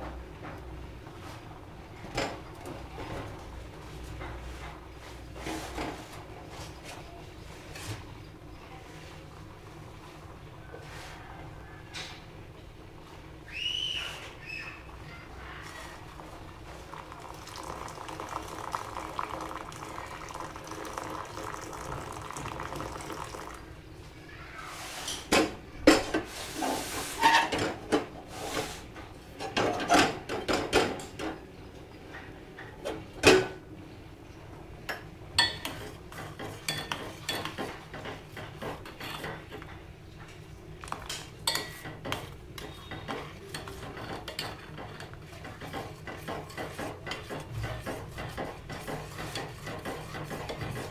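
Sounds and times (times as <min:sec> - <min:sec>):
milk pouring into pot: 0:16.1 - 0:23.7
metal spoon stirring in pot: 0:35.4 - 0:39.7, 0:41.1 - 0:50.9.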